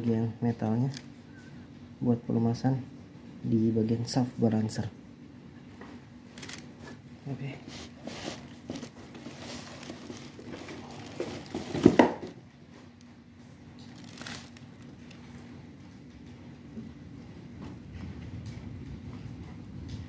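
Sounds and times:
plastic bag crinkling: 6.3 - 7.0, 7.7 - 12.2, 13.8 - 15.4.

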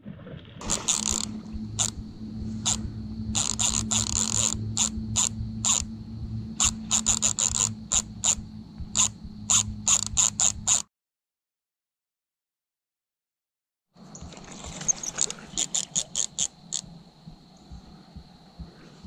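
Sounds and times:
fishing reel drag clicking: 0.6 - 6.0, 6.6 - 10.9, 14.7 - 16.9
steady low hum: 0.6 - 10.8, 14.0 - 19.0.

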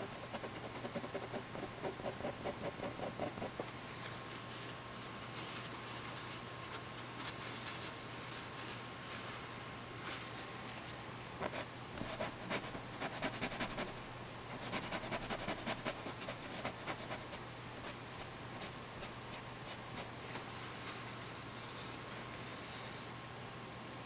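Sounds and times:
faint room hiss: 0.0 - 24.0
fingertips rubbing canvas: 0.4 - 3.7, 11.4 - 14.0, 14.6 - 18.0.

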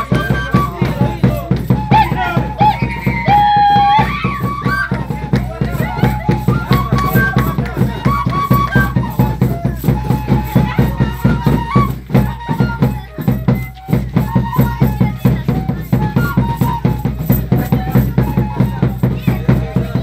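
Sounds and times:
high held melody: 0.0 - 20.0
quick percussion beat: 0.0 - 20.0.

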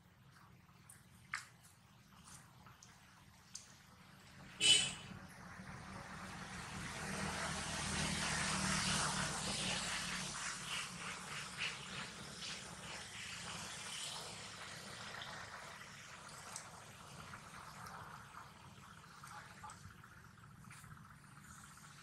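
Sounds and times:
distant vehicle engine passing: 5.0 - 16.2.

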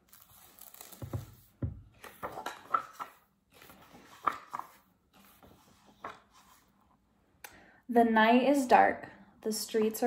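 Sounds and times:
book pages rustling and flapping: 0.0 - 6.7.

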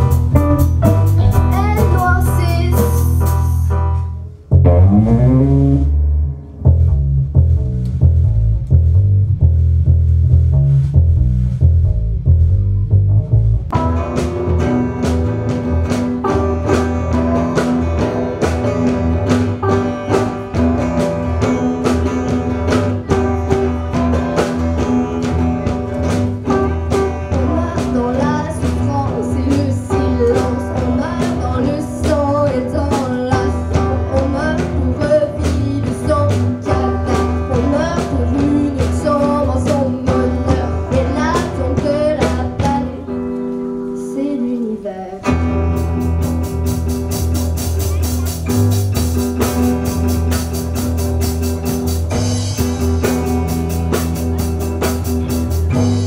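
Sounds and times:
drum kit beat: 0.0 - 5.8, 6.4 - 43.0, 45.3 - 56.0
keyboard: 0.0 - 6.6
bass guitar: 0.0 - 56.0
electric guitars: 0.0 - 56.0
girl singing into microphone: 1.3 - 3.7, 26.5 - 45.3.

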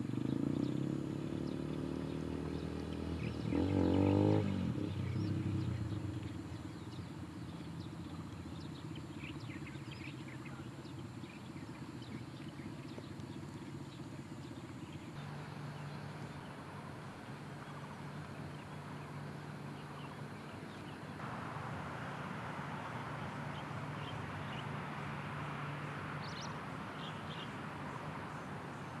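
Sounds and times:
faint bird chirps: 0.0 - 21.2.

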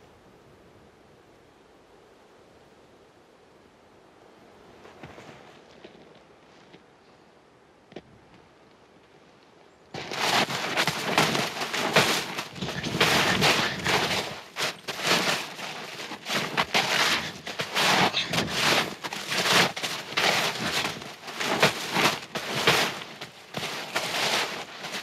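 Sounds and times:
footsteps crunching in snow: 4.8 - 6.8, 10.0 - 25.0
winter jacket rustling: 10.0 - 25.0.

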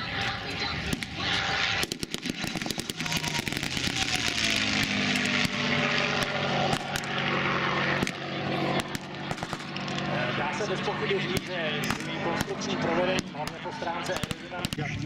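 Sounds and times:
propeller plane engine fly-by: 0.0 - 15.0.

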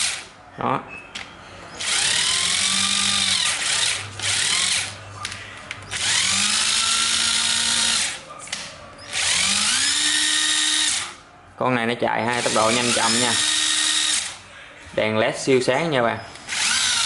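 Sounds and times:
impact driver motor whine: 5.9 - 8.2, 9.1 - 11.1, 16.4 - 17.0.

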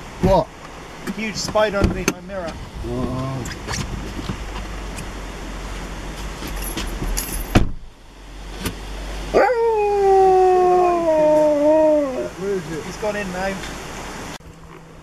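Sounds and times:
husky howling: 9.3 - 12.4.

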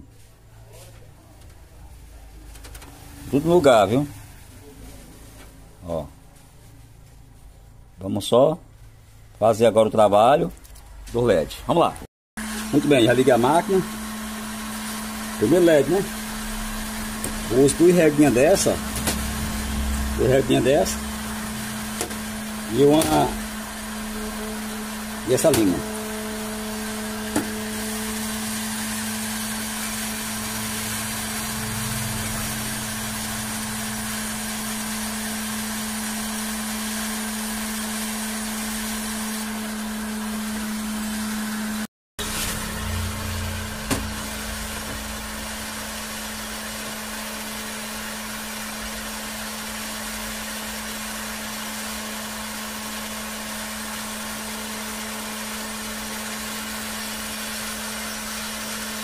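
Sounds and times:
hot plate humming: 12.4 - 59.0.

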